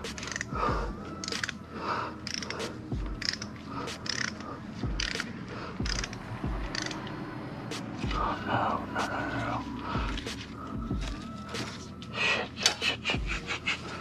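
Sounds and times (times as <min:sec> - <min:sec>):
hand ratchet clicking: 0:00.0 - 0:00.6, 0:01.2 - 0:01.6, 0:02.2 - 0:07.1.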